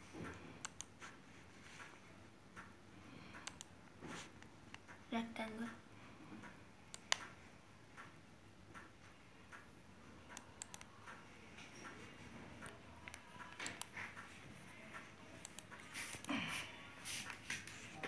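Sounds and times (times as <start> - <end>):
laptop keyboard clicks: 3.3 - 3.7, 10.3 - 10.9.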